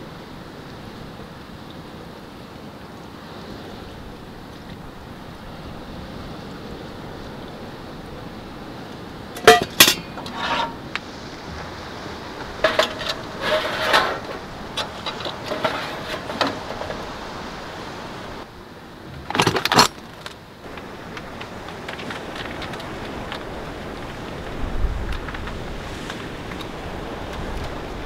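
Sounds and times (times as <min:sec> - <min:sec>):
steady background hiss: 0:00.0 - 0:28.0
metal cookware clinking: 0:09.4 - 0:10.8, 0:12.4 - 0:17.0.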